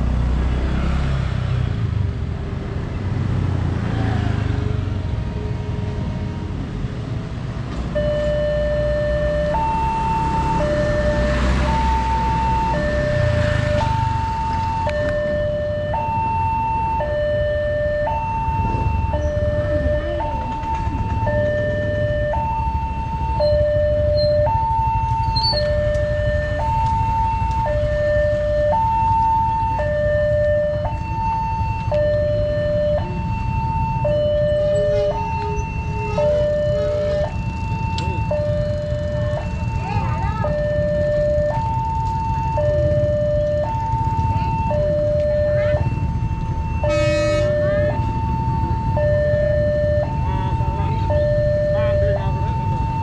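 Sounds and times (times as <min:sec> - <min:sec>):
low traffic rumble: 0:00.0 - 0:53.0
two-tone crossing alarm: 0:07.7 - 0:53.0
horn blowing: 0:46.8 - 0:47.9.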